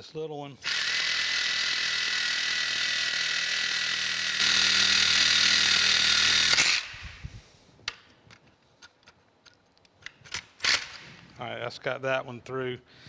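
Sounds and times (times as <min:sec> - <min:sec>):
reciprocating saw cutting metal: 0:00.6 - 0:07.0.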